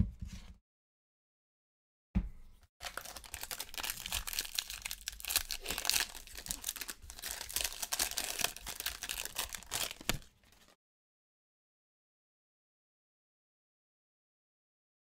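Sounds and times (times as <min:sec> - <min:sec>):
foil wrapper tearing and crinkling: 0:02.8 - 0:10.8.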